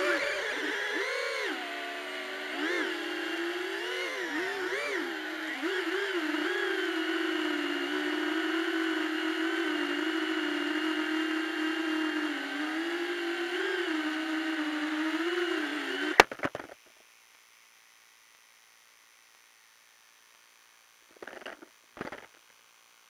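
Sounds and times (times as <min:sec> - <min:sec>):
drone motors whining: 0:00.0 - 0:16.7.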